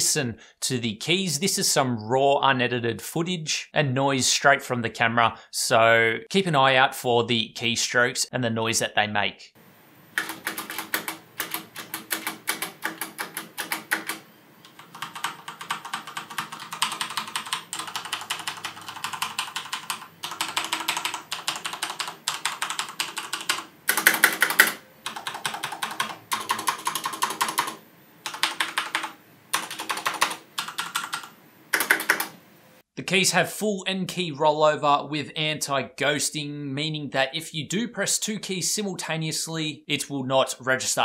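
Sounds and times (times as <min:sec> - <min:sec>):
mechanical keyboard key clacks: 0:31.8 - 0:32.3.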